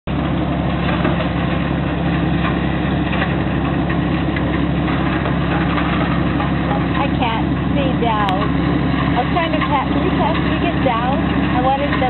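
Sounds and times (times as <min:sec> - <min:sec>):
boat engine running: 0:00.1 - 0:12.0.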